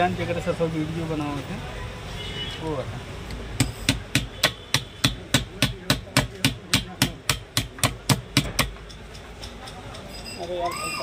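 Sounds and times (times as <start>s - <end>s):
hand tool tapping on metal: 3.6s - 10.8s.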